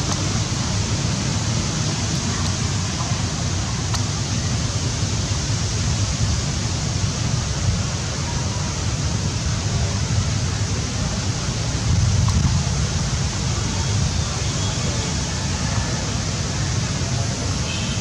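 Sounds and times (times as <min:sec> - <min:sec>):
wind on microphone: 0:11.2 - 0:14.4.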